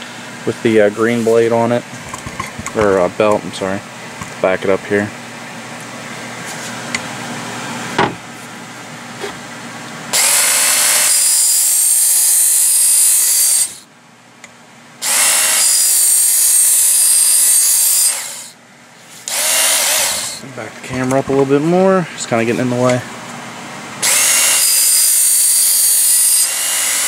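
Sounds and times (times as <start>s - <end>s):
belt sharpener grinding steel: 10.2s - 13.8s, 15.0s - 18.5s, 19.2s - 20.4s, 24.0s - 27.0s
motor whining up to speed: 15.0s - 18.6s, 19.2s - 20.4s, 24.0s - 27.0s.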